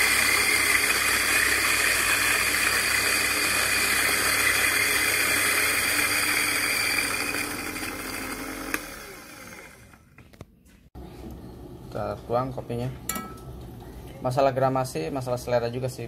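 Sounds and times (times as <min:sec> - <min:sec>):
coffee grinder grinding beans: 0:00.0 - 0:10.1.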